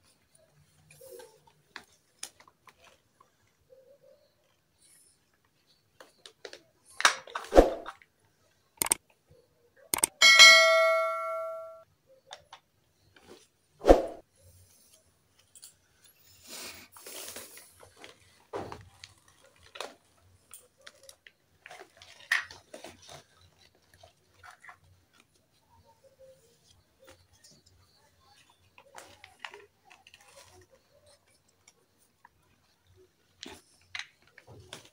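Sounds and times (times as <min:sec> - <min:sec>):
plastic toy pieces clicking and knocking: 0:10.0 - 0:10.2
ringing ding: 0:10.1 - 0:11.8.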